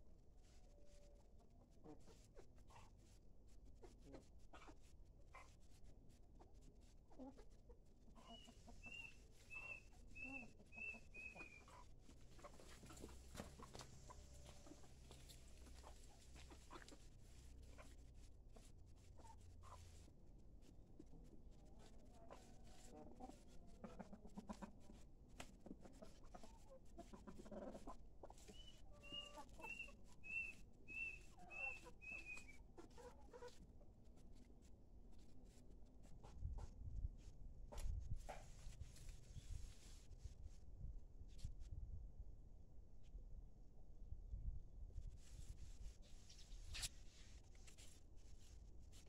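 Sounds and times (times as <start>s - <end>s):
chickens clucking: 0.6s - 39.8s.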